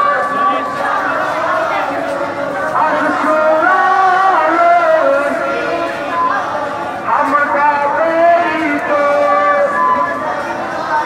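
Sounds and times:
person singing a devotional chant: 0:00.0 - 0:11.0.

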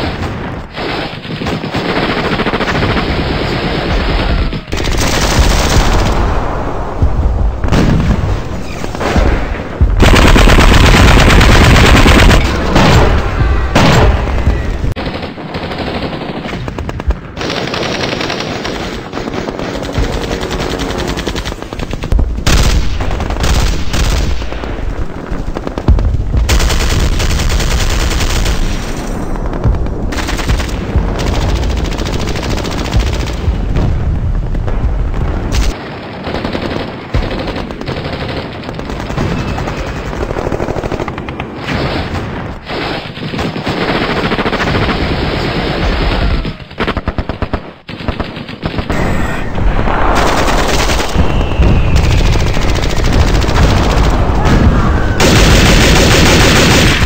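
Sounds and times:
machine-gun bursts: 0:55.2 - 0:57.0.

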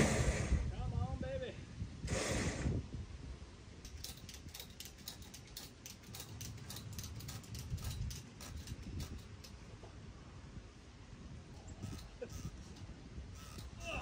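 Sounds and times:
wind rumble on microphone: 0:00.0 - 0:05.4, 0:06.1 - 0:14.0
ratchet strap clicking: 0:03.9 - 0:09.6, 0:11.6 - 0:13.8.

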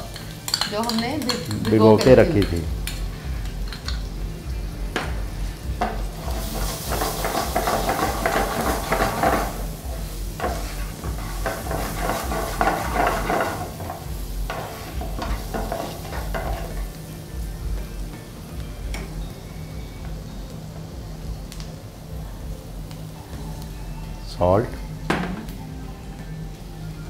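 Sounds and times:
lentils sizzling in hot oil: 0:00.0 - 0:27.0
spatula stirring and scraping: 0:05.8 - 0:17.0.

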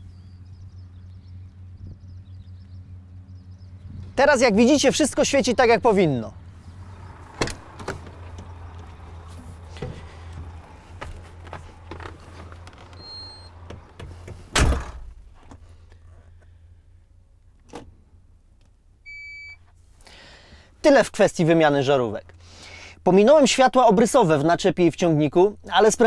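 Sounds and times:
truck door slamming: 0:06.9 - 0:15.4
knocks and clicks: 0:09.8 - 0:14.4.

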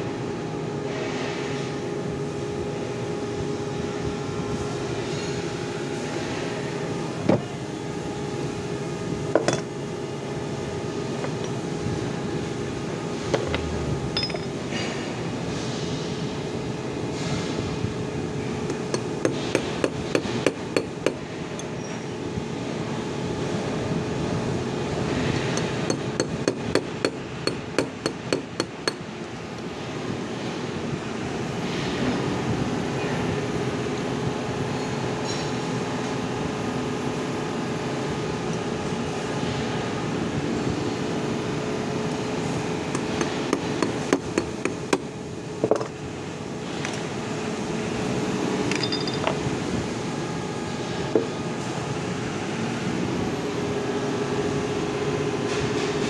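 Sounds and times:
steady tonal hum: 0:02.2 - 0:15.7.

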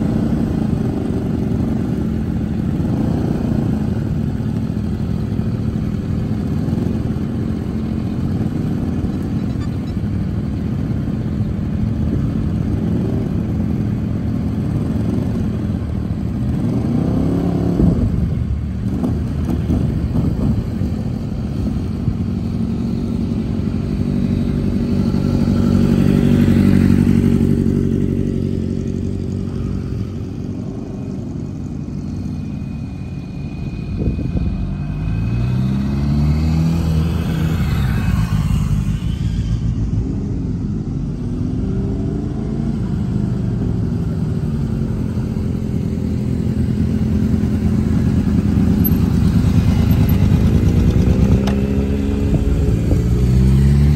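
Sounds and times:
motorcycle engines idling: 0:00.0 - 0:34.9, 0:37.2 - 0:53.6.

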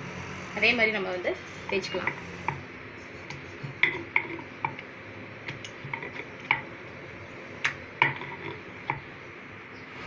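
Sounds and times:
dough rolling clicks and knocks: 0:03.3 - 0:04.8, 0:05.4 - 0:06.7, 0:07.6 - 0:09.1.

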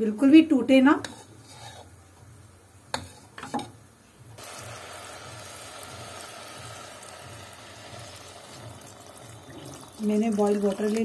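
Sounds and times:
water pouring into pot: 0:04.4 - 0:11.0.

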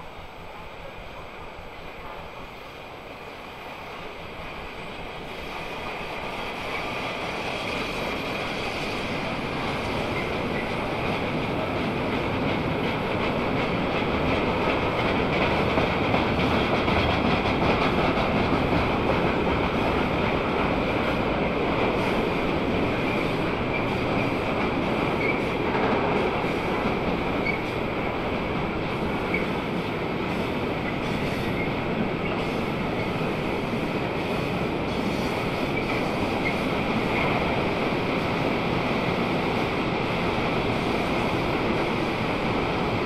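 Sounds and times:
train wheels rumbling and rattling: 0:00.0 - 0:43.0.

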